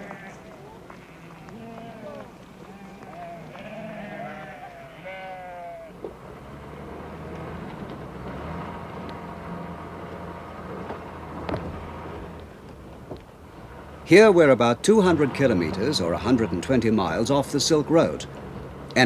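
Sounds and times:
sheep or goats bleating: 0.0s - 6.0s.

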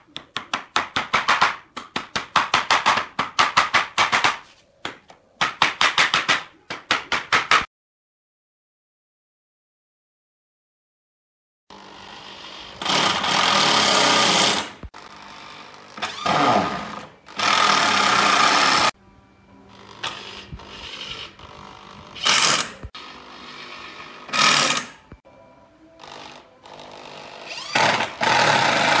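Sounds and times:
electric drill driving screws: 11.7s - 18.9s, 19.7s - 25.0s, 26.0s - 29.0s.

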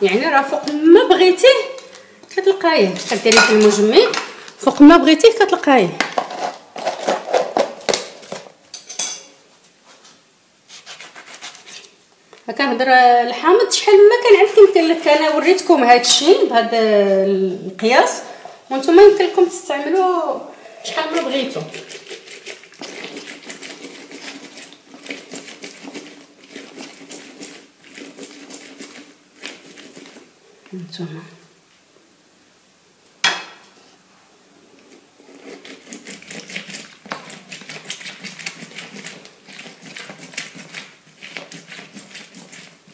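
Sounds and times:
container scraping on stone: 6.0s - 9.2s, 20.8s - 30.3s
lemon scraping on citrus reamer: 20.9s - 30.3s, 35.2s - 42.9s.

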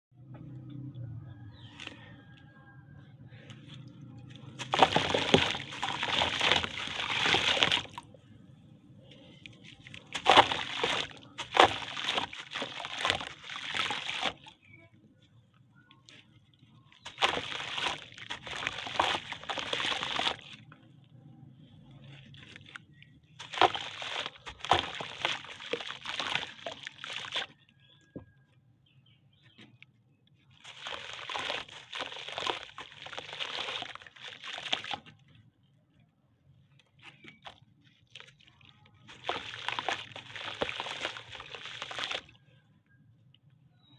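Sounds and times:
water sloshing: 0.2s - 2.5s, 3.3s - 27.9s, 30.4s - 36.0s, 36.6s - 42.6s
crumbs splashing into water: 3.7s - 8.2s, 9.0s - 14.8s, 16.8s - 20.8s, 21.8s - 27.6s, 30.5s - 35.2s, 37.0s - 42.4s
dirt crushed by hand: 3.8s - 8.2s, 9.1s - 14.8s, 17.0s - 20.7s, 22.0s - 27.6s, 30.6s - 35.1s, 37.1s - 42.4s.

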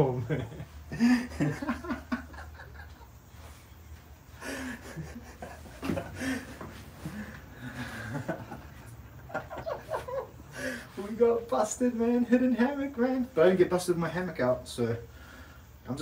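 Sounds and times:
man laughing: 0.0s - 3.2s, 4.4s - 11.0s.

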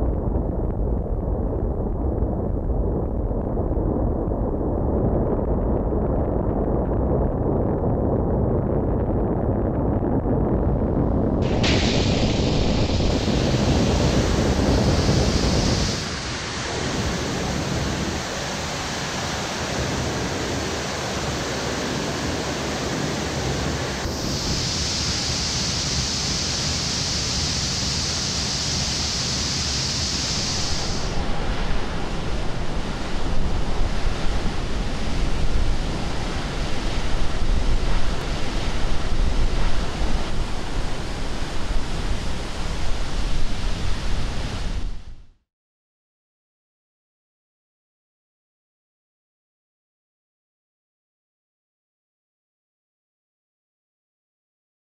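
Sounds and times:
rocket engine roaring: 0.0s - 44.6s
water spray hissing: 11.4s - 19.9s, 24.0s - 31.2s
bright hiss: 11.4s - 23.0s, 23.6s - 32.1s.

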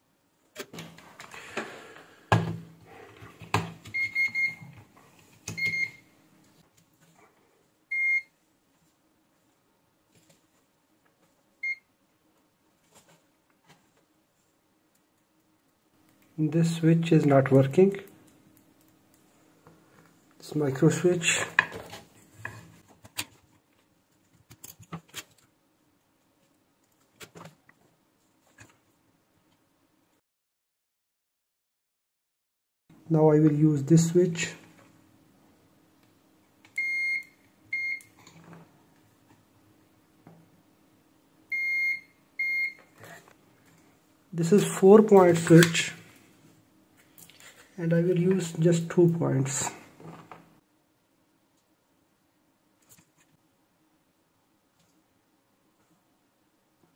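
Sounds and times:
meter beeps: 4.0s - 4.6s, 5.6s - 6.0s, 41.5s - 42.8s.

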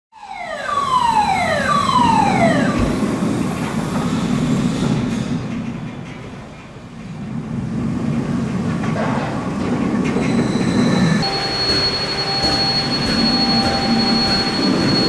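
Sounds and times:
roller coaster rumbling on track: 0.8s - 15.0s
falling whines: 10.2s - 15.0s.

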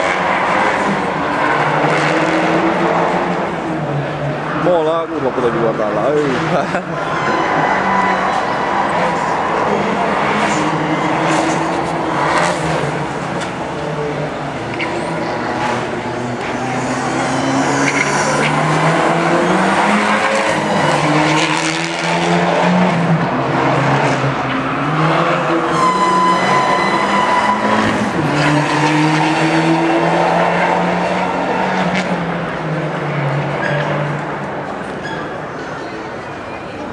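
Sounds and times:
race car engine revving: 0.0s - 35.0s
tyres squealing: 25.5s - 28.3s.

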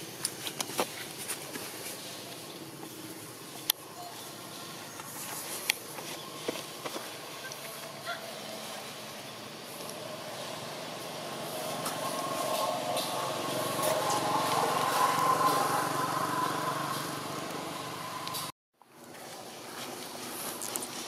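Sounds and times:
vehicle engine running: 5.8s - 18.5s.

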